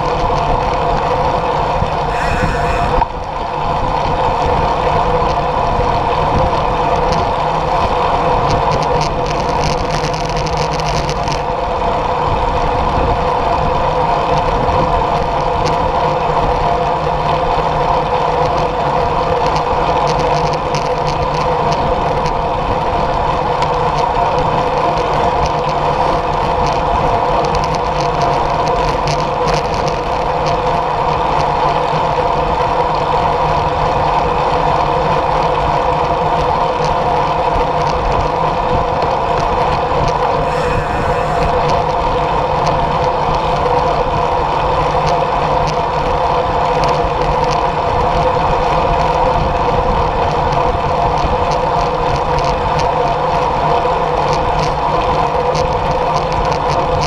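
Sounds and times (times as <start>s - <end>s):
constant hum: 0.0s - 4.1s, 36.2s - 47.7s
wind rushing over camera: 0.1s - 4.7s, 35.6s - 57.0s.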